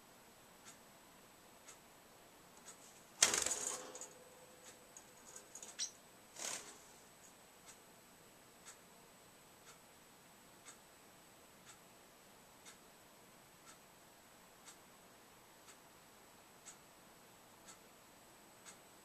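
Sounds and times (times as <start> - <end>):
faint ticking: 0.6 - 12.0, 12.6 - 13.9, 15.6 - 19.0
metallic cage rattle: 3.2 - 4.2, 5.0 - 6.8
bird claws scrabbling clicks: 5.0 - 6.8.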